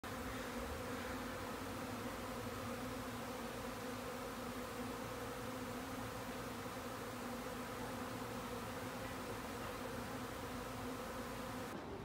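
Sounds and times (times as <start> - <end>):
bees buzzing: 0.0 - 11.8.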